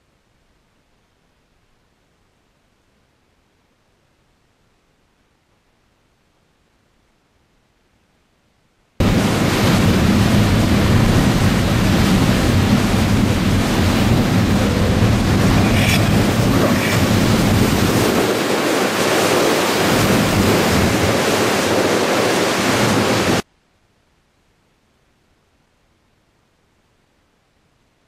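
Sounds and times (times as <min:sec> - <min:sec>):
jet skis running: 0:09.0 - 0:23.4
water rushing from boat wake: 0:09.0 - 0:23.4
wind buffeting microphone: 0:09.0 - 0:23.4.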